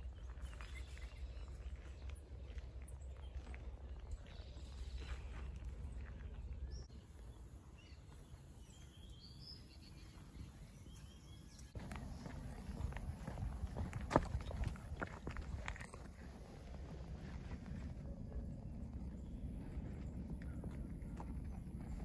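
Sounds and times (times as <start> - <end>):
steady low rumble: 0.0 - 6.9, 11.8 - 22.0
footsteps on paved path: 0.0 - 22.0.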